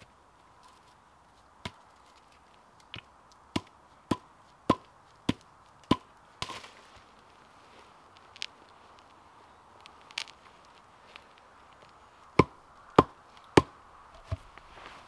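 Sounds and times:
axe chopping wood: 0:03.5 - 0:06.6, 0:12.4 - 0:14.5.

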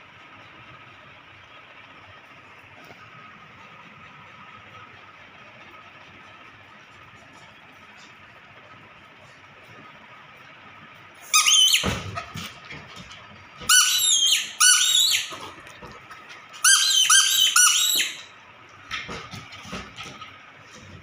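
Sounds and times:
rubber squeaky ball squeaking: 0:11.3 - 0:12.3, 0:13.6 - 0:15.4, 0:16.6 - 0:18.3.

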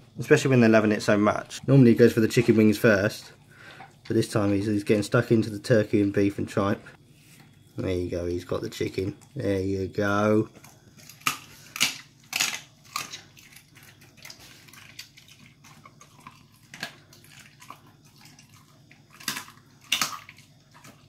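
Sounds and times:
puppy crunching chicken bone: 0:10.5 - 0:21.0.

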